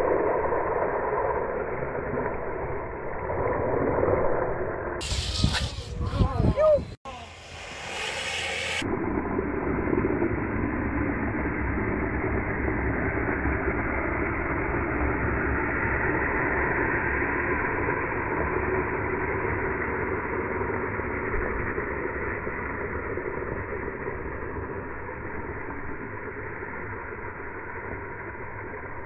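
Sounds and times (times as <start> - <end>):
skateboard wheels sliding on asphalt: 0.0 - 6.3, 7.2 - 8.8.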